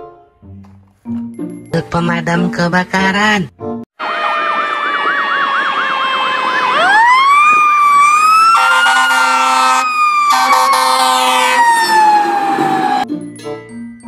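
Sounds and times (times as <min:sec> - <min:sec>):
yelping siren: 0:04.0 - 0:13.0
wailing siren: 0:04.0 - 0:13.1
air horn blasts: 0:08.5 - 0:11.8.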